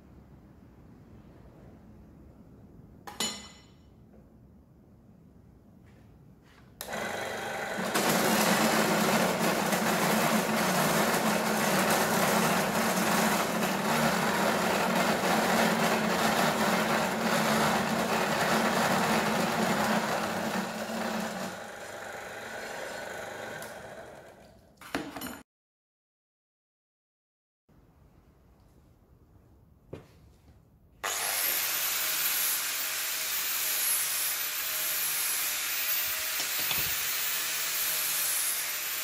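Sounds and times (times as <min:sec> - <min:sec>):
metal saw cutting steel: 0:31.0 - 0:39.0.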